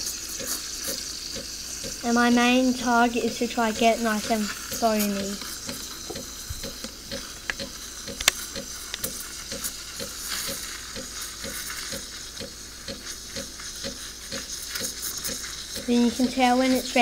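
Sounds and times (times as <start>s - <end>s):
steam wand hissing into milk: 0.0s - 17.0s
espresso machine ticking: 0.1s - 17.0s
sharp click: 7.4s - 9.1s.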